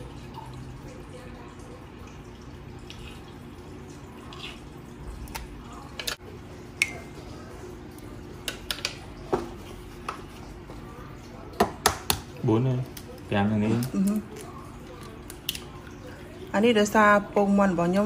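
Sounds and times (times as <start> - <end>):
batter dripping and squishing: 1.6 - 17.0.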